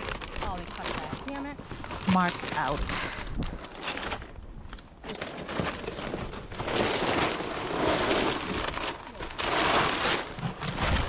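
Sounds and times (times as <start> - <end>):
boxes and snack bags rustling: 0.0 - 11.0.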